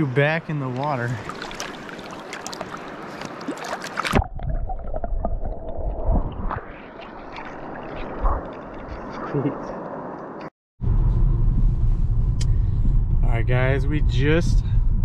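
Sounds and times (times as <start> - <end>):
river water splashing: 0.0 - 10.4.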